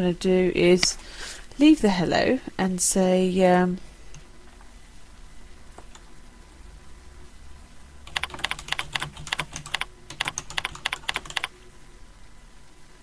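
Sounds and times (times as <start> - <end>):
computer keyboard typing: 8.1 - 11.5.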